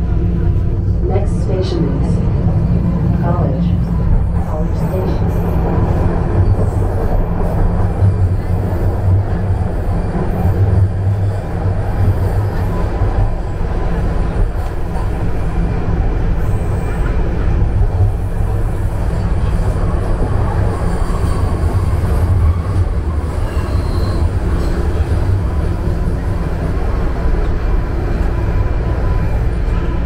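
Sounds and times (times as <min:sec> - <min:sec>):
subway train rumble: 0:00.0 - 0:30.0.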